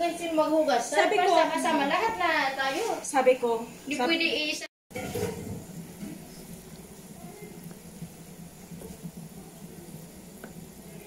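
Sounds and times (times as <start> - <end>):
liquid boiling and bubbling: 4.9 - 11.0
wooden spoon stirring: 4.9 - 11.0.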